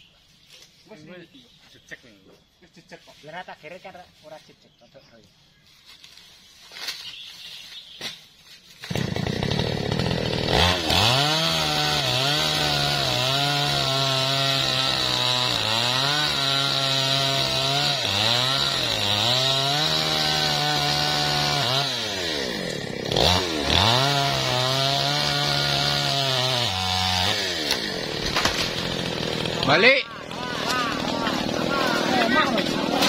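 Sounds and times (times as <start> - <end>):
chainsaw cutting wood: 8.8 - 33.0.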